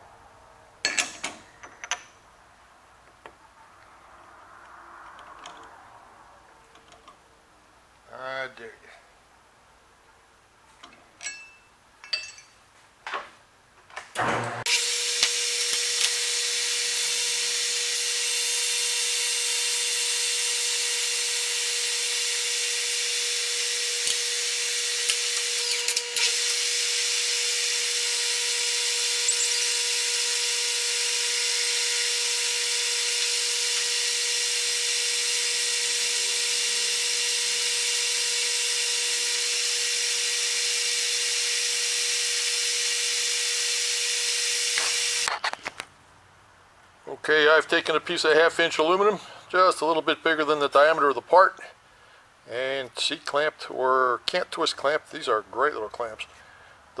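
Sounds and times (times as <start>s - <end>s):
lathe tool cutting hiss: 14.6s - 45.3s.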